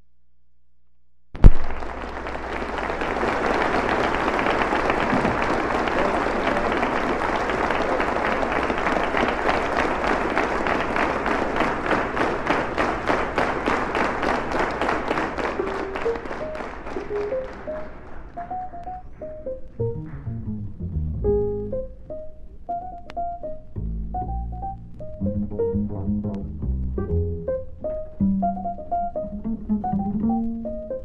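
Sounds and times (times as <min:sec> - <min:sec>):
loud thump: 0:01.4 - 0:01.8
audience applauding: 0:01.4 - 0:19.4.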